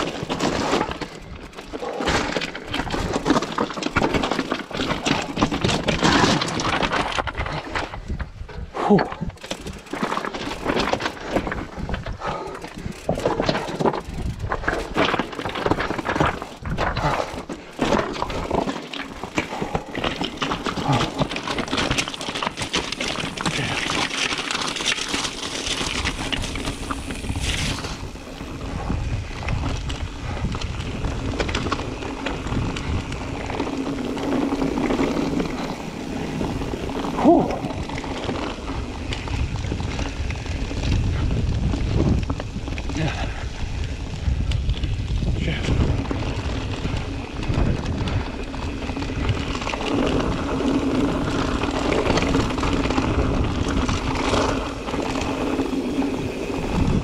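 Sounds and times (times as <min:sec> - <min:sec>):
bike clattering over stones: 0:00.0 - 0:57.0
steady rushing noise: 0:07.3 - 0:57.0
wind on microphone: 0:26.0 - 0:55.2, 0:55.9 - 0:57.0.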